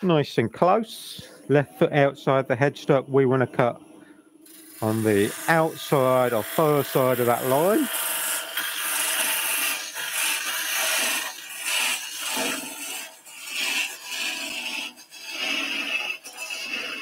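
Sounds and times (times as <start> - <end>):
lathe tool scraping wood: 4.5 - 17.0.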